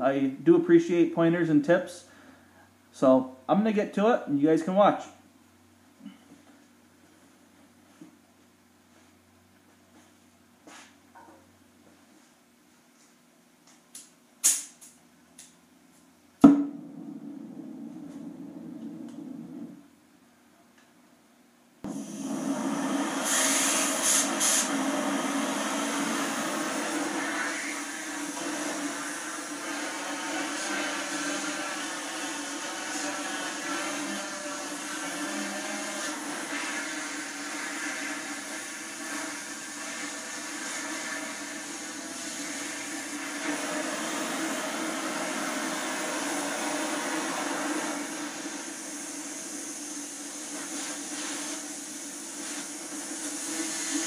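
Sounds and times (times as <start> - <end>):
cutting torch flame hissing: 16.8 - 19.8, 21.9 - 54.0.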